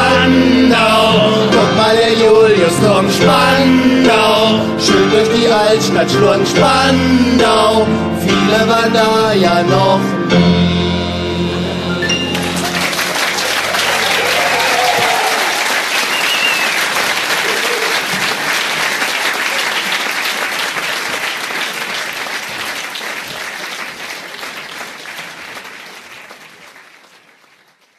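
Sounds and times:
audience applauding: 12.0 - 27.9.

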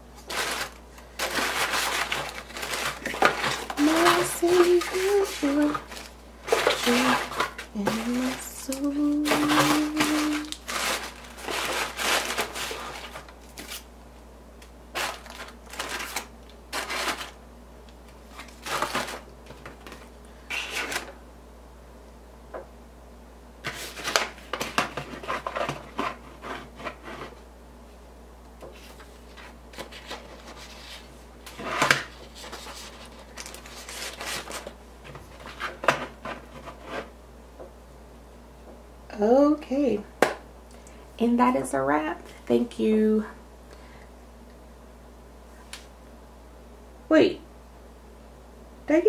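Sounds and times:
paper and card rustling: 0.2 - 13.9, 14.9 - 17.4, 18.1 - 21.1, 23.6 - 27.4, 28.7 - 37.1.

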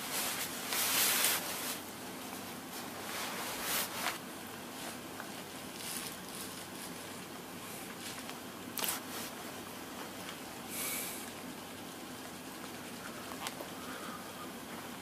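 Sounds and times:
soft rustles: 0.0 - 10.4
low steady hiss: 0.0 - 15.0.

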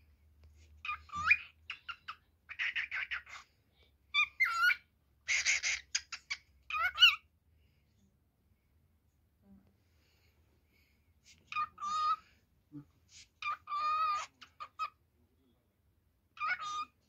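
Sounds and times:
cockatiel whistling and chattering: 0.8 - 3.5, 4.1 - 7.3, 11.4 - 12.2, 13.1 - 15.0, 16.4 - 17.0.

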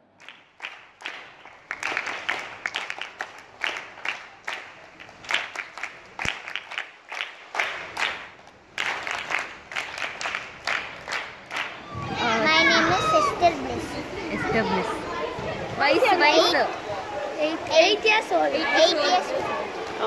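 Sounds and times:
girls clapping: 0.2 - 12.4.

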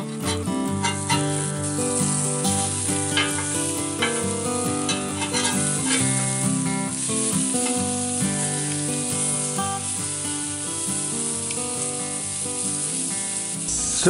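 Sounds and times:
acoustic guitar music: 0.0 - 14.0
metal spatula scraping: 0.1 - 6.2
steaks sizzling on griddle: 0.1 - 14.0.

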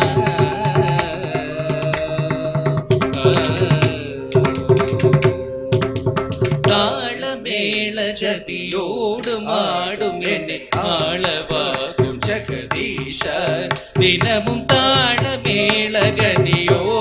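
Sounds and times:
sharp drum strokes: 0.0 - 7.1, 8.7 - 17.0
ornamented gliding melody: 4.1 - 7.3.

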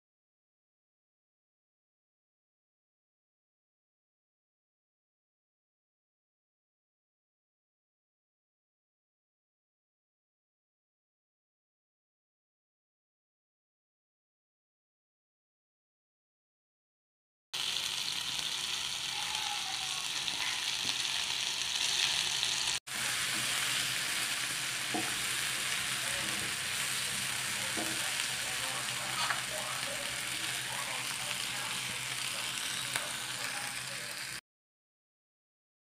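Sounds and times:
food sizzling in pan: 17.6 - 34.4
spatula scraping pan: 21.8 - 29.7.

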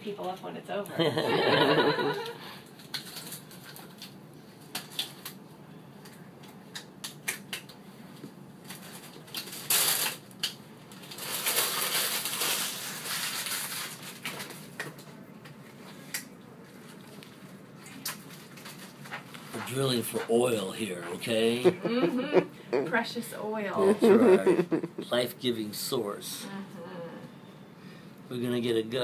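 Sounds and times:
paper and plastic crinkling: 2.8 - 5.4, 8.6 - 21.5.

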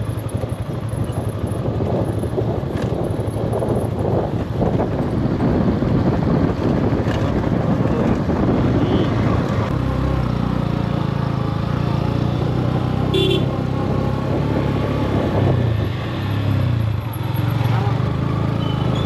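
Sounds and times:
motorcycle engine running: 0.0 - 19.0
wind rumble: 0.5 - 9.8, 13.6 - 17.2.

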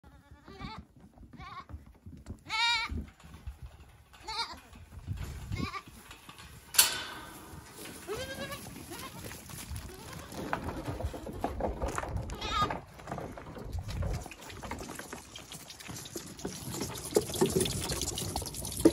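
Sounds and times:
goat kids bleating: 0.0 - 1.8, 2.4 - 3.0, 4.2 - 4.7, 5.5 - 6.0, 7.9 - 10.6, 12.3 - 12.8.

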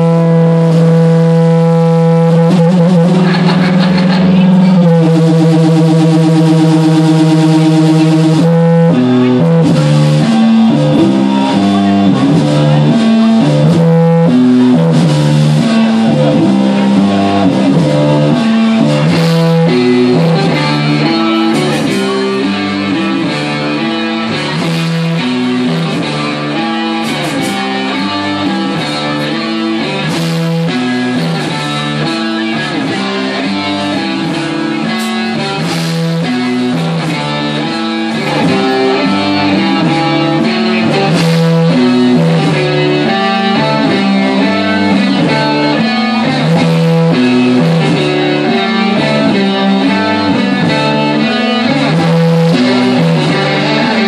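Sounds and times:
distorted electric guitar riff: 0.0 - 54.0
live rock band instrumental: 0.0 - 54.0.

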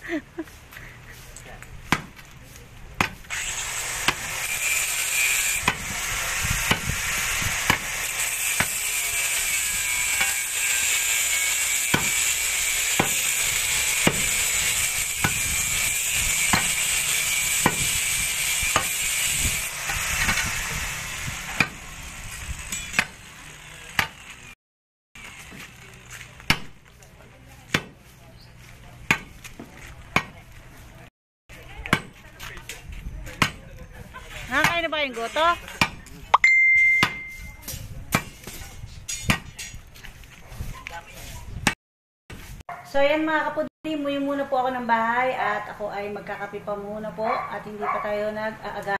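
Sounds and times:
hand tool striking: 10.1 - 19.1, 35.7 - 39.8.

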